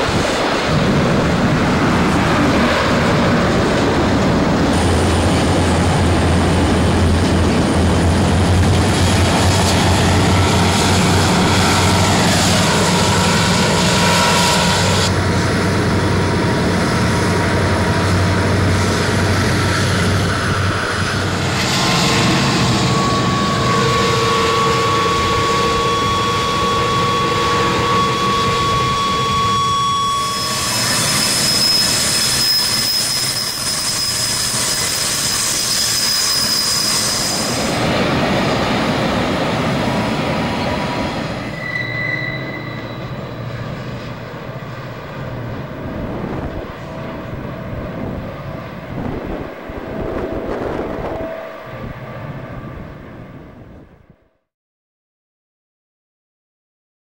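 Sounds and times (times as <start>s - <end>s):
train wheels rumbling on rails: 0.0s - 54.0s
flange squeal: 4.7s - 53.7s
high-pitched wheel squeal: 19.6s - 37.8s, 40.6s - 44.1s.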